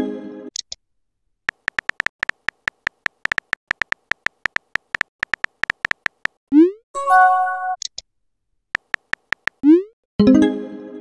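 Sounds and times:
phone keyboard key clicks: 1.5s - 6.4s, 8.8s - 9.6s.

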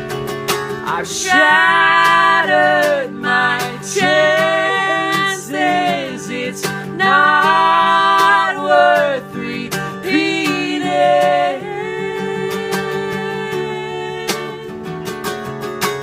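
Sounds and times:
strummed guitar: 0.0s - 16.0s
man and woman singing: 0.8s - 14.9s.

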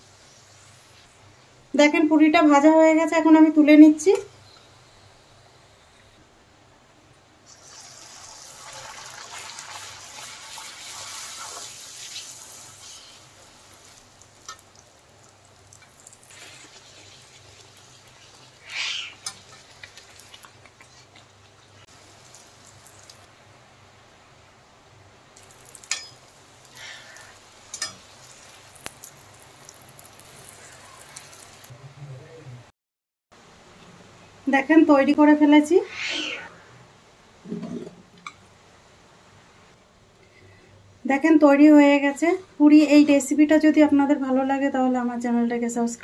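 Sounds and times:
oil sizzling: 0.0s - 2.0s, 7.4s - 31.7s
short hissing bursts: 10.9s - 13.9s, 18.4s - 19.3s, 26.4s - 31.7s, 35.8s - 36.8s.

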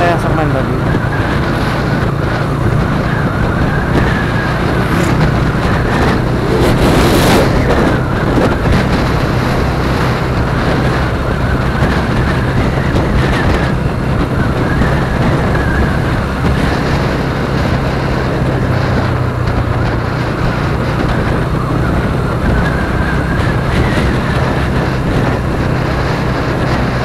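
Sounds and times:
motorcycle engine running: 0.0s - 27.0s
road and wind noise: 0.0s - 27.0s.

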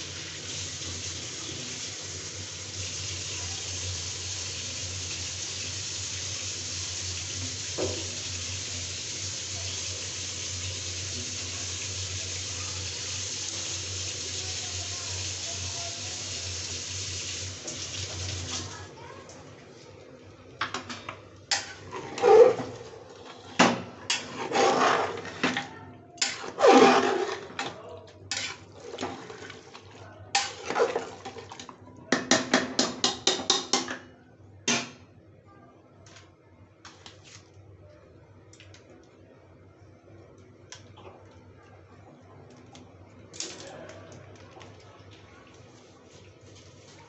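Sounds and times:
metal ladle scraping a pot: 21.5s - 23.4s, 24.1s - 29.6s.

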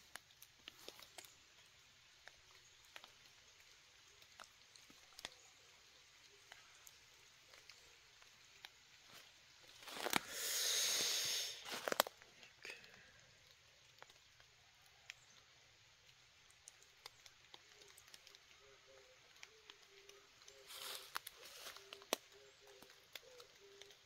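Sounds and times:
faint ticks: 0.0s - 24.0s
dry leaves crunching underfoot: 3.9s - 12.4s, 20.3s - 23.8s.

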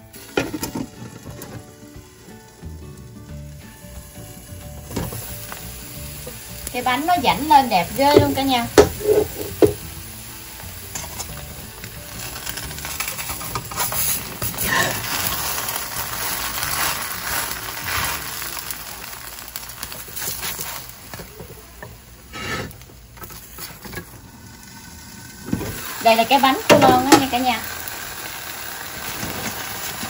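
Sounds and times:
crepe sizzling in oil: 0.0s - 30.0s
spatula scraping a pan: 8.8s - 9.6s, 22.3s - 22.8s.

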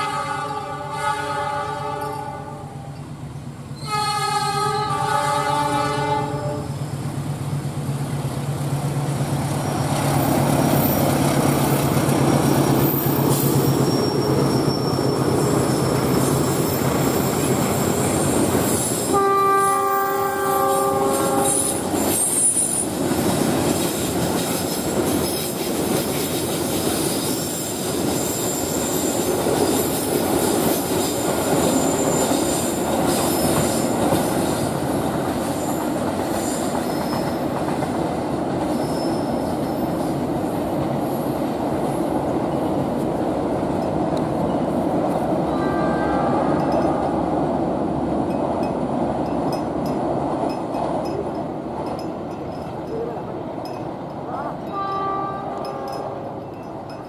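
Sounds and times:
locomotive horn blasts: 0.0s - 2.9s, 3.8s - 6.8s, 19.1s - 21.9s, 45.5s - 47.0s, 54.4s - 56.4s
train wheels squealing on rails: 2.0s - 4.8s, 9.3s - 47.4s.

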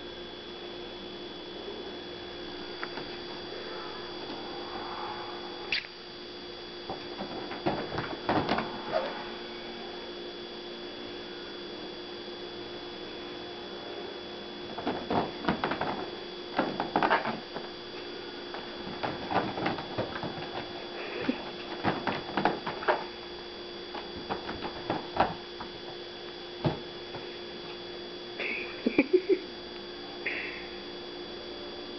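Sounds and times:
steady electrical hum: 0.0s - 31.9s
cat paws scrabbling on cushions: 6.9s - 8.8s, 14.7s - 17.7s, 18.5s - 23.1s.

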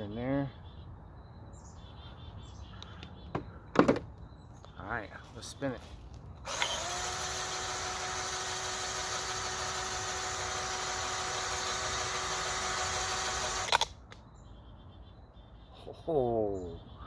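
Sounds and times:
cordless drill whining: 6.4s - 13.9s.

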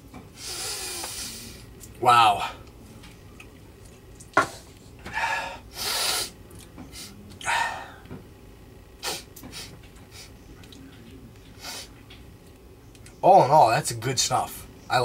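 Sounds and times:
man sniffing hard: 5.2s - 6.4s, 9.0s - 10.3s.

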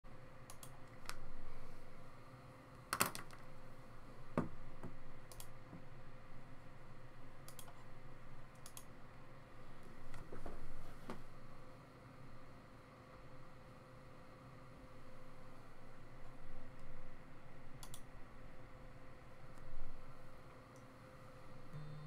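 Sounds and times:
faint steady hum: 0.1s - 22.0s
keyboard and mouse clicks: 0.5s - 1.2s, 5.3s - 5.5s, 7.4s - 7.8s, 8.6s - 8.9s, 17.8s - 18.1s.

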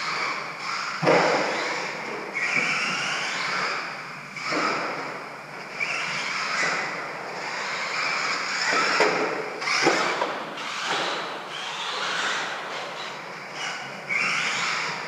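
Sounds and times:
toy truck motor whine: 0.0s - 15.0s.

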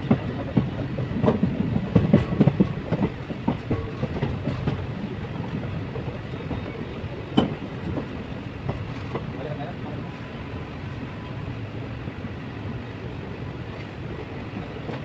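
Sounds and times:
train rumbling on track: 0.0s - 15.0s
wheels clacking and knocking: 0.1s - 6.7s.

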